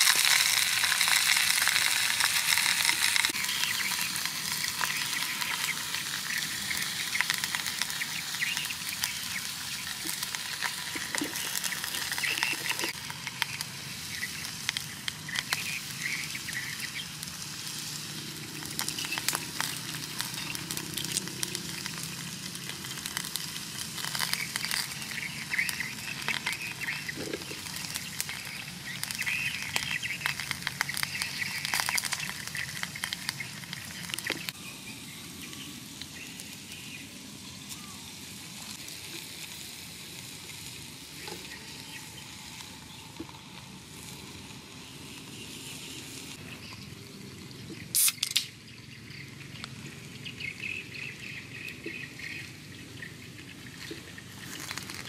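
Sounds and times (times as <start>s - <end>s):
beer can opening hiss: 0.0s - 34.6s, 47.8s - 48.6s, 54.3s - 55.0s
food sizzling and popping: 0.0s - 55.0s.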